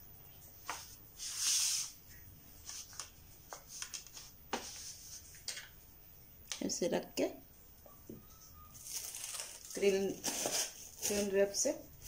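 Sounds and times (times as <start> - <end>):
pastry dough rustling: 8.7 - 12.0.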